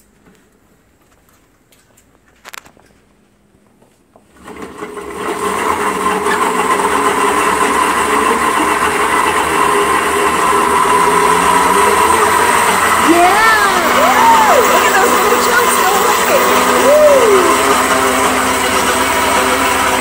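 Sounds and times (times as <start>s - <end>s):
blender whirring: 4.3s - 20.0s.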